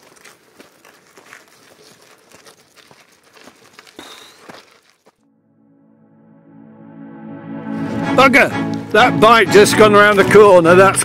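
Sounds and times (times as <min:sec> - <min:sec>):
gravel crunching: 0:00.0 - 0:05.2
music: 0:05.3 - 0:11.0.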